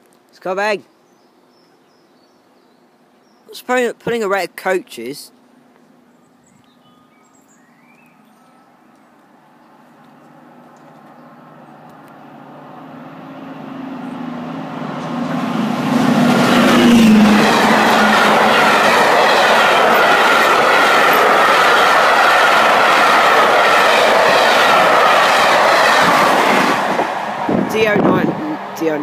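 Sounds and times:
diesel locomotive engine passing: 8.6s - 29.0s.

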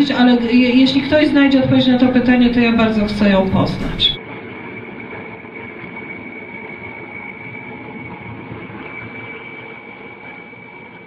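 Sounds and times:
high-pitched whine: 0.0s - 11.0s
steady background noise: 0.0s - 11.0s.

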